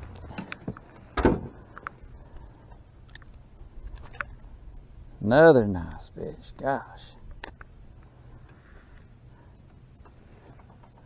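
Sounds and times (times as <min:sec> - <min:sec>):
loud thump: 0:01.2 - 0:01.6
clicks and knocks handling fish: 0:03.0 - 0:04.4.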